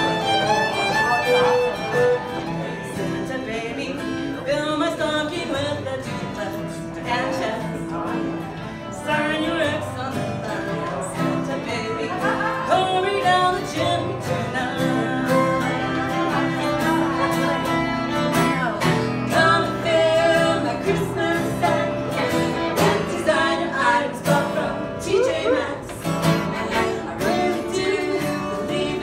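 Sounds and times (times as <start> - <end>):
fiddles playing: 0.0 - 3.7, 14.9 - 24.2
acoustic guitar: 0.0 - 29.0
women singing: 3.2 - 29.0.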